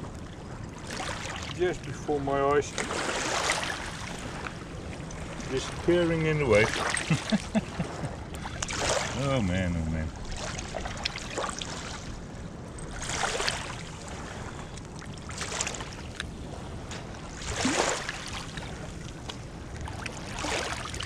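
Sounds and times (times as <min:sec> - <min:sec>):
steady low rumble: 0:00.0 - 0:21.0
small waves washing over gravel: 0:13.0 - 0:14.3, 0:15.2 - 0:16.3.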